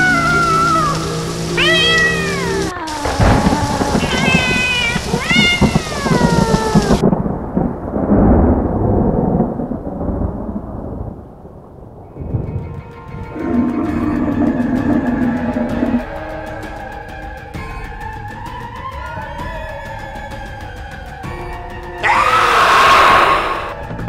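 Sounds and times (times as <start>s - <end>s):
cats yowling: 0.0s - 7.0s, 13.4s - 16.9s, 22.0s - 23.8s
thunder rumbling: 0.0s - 24.0s.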